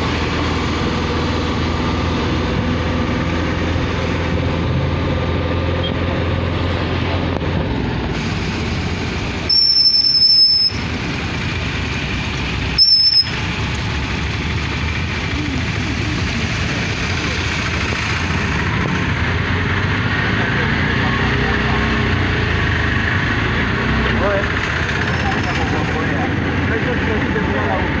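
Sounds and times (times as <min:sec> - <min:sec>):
engine and traffic noise: 0:00.0 - 0:28.0
shrill high-pitched squeals: 0:09.5 - 0:10.8, 0:12.8 - 0:13.4.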